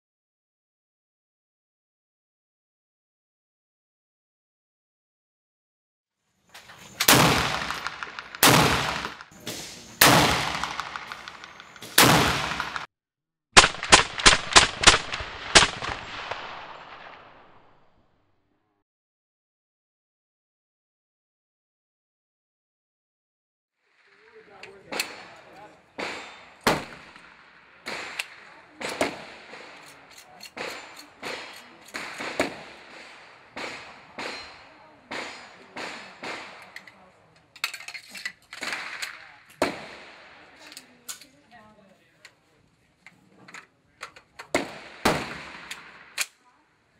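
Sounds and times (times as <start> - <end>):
suppressed rifle shots: 6.8 - 12.9, 13.6 - 17.8, 24.2 - 37.0, 38.6 - 40.5, 44.5 - 46.3
gunshots with echo: 7.0 - 12.9, 13.6 - 17.9, 24.0 - 36.8, 38.6 - 40.6, 44.5 - 46.2.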